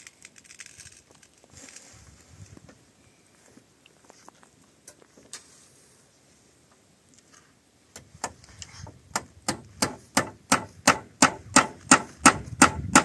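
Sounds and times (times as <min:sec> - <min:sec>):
hammer striking nails into wood: 0:09.2 - 0:13.0.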